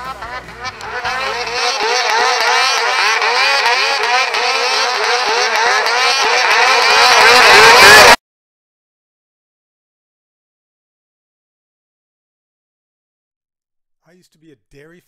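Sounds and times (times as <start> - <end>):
snowmobile engine revving: 0.0 - 8.2.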